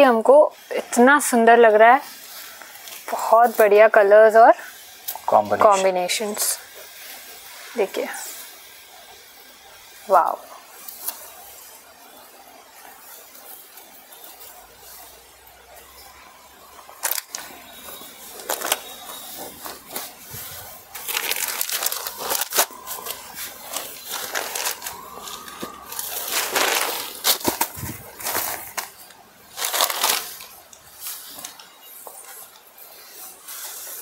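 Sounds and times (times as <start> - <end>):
silk fabric rustling: 17.8 - 34.0.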